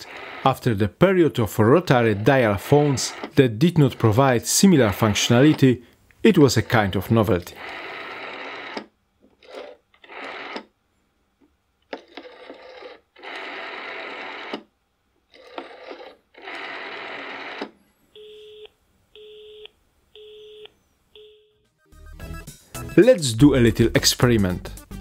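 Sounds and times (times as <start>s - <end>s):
rotary dial click and whirr: 11.9s - 14.7s
telephone busy signal beeping: 18.2s - 21.6s.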